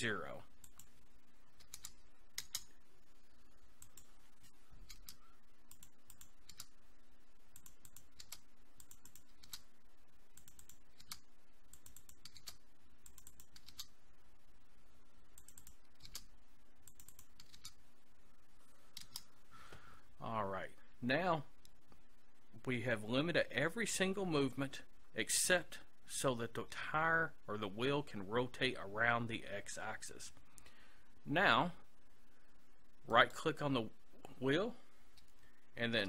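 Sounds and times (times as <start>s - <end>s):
keyboard and mouse clicks: 1.6s - 2.8s, 3.8s - 6.8s, 7.5s - 9.7s, 10.3s - 13.9s, 15.3s - 17.8s, 18.9s - 19.3s.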